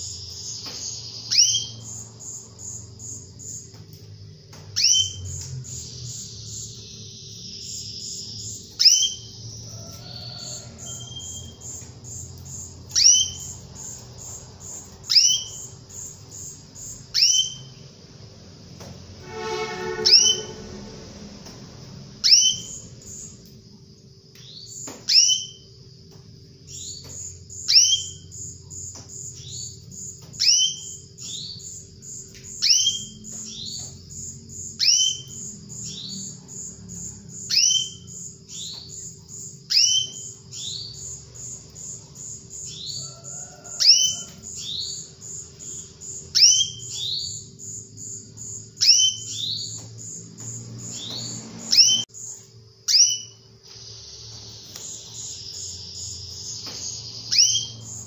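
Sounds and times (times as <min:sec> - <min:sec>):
canary whistled calls: 0:00.8 - 0:02.0, 0:04.8 - 0:11.6, 0:12.9 - 0:13.5, 0:15.0 - 0:15.7, 0:17.1 - 0:17.7, 0:19.2 - 0:20.8, 0:22.2 - 0:22.8, 0:25.1 - 0:25.6, 0:27.7 - 0:28.2, 0:30.4 - 0:31.6, 0:32.6 - 0:33.8, 0:34.8 - 0:36.2, 0:37.4 - 0:38.7, 0:39.7 - 0:41.0, 0:42.7 - 0:45.0, 0:46.3 - 0:47.5, 0:48.8 - 0:49.7, 0:51.0 - 0:52.0, 0:52.9 - 0:55.5, 0:57.2 - 0:57.9
high chirping trill: 0:19.2 - 0:21.0.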